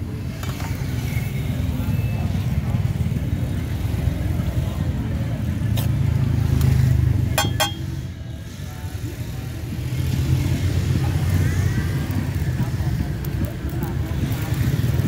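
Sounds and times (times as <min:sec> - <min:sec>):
street traffic rumble: 0:00.0 - 0:15.0
metal ladle knocking on pan: 0:07.4 - 0:07.9.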